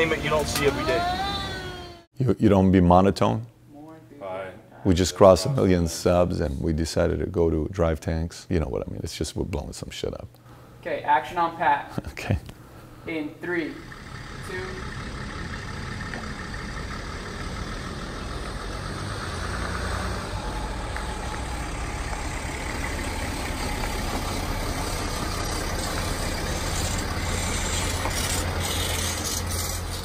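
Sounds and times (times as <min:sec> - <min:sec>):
van engine rumbling: 0:00.0 - 0:02.1, 0:13.4 - 0:30.0.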